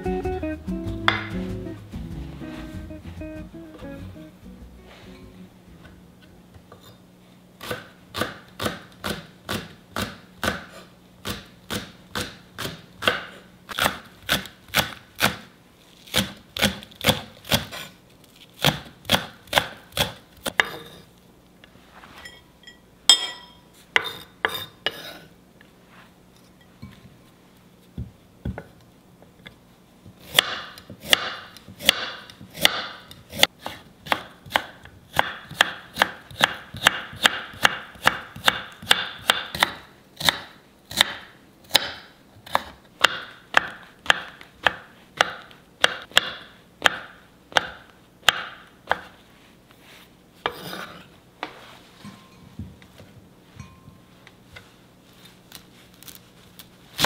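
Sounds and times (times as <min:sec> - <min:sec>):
knife chopping on wooden board: 0:07.6 - 0:15.5, 0:18.6 - 0:21.0, 0:30.2 - 0:49.1.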